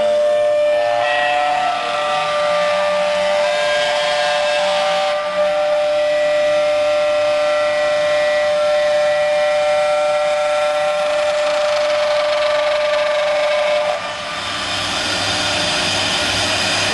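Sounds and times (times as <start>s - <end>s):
router spindle whining: 7.6s - 16.9s
rough wood cutting noise: 10.9s - 14.9s.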